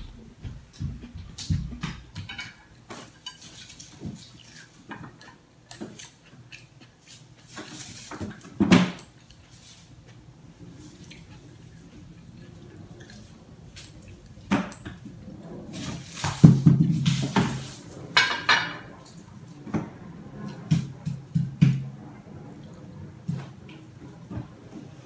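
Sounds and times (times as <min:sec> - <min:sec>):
dishes and utensils clinking: 0:01.8 - 0:09.3, 0:15.8 - 0:19.2.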